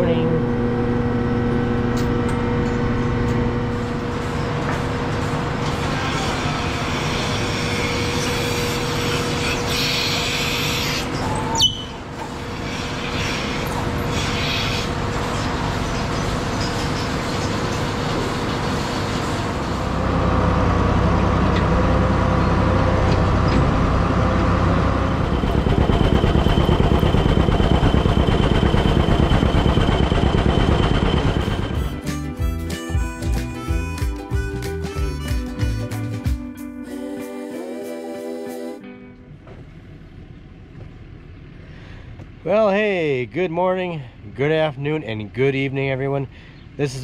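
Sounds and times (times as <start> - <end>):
heavy low machine: 0.0 - 8.3, 14.8 - 36.2
milking machine hum: 0.0 - 32.0
old tractor engine running: 14.9 - 32.1.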